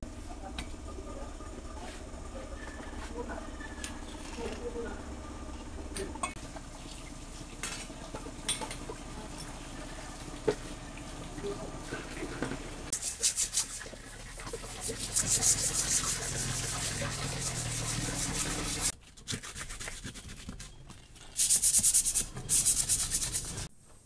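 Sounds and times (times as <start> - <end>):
hand sanding metal: 13.0 - 13.9, 14.6 - 20.5, 21.4 - 23.7.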